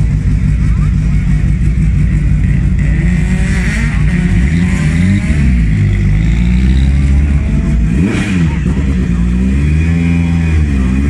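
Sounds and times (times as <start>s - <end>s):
race car engine running lumpy: 0.0s - 11.0s.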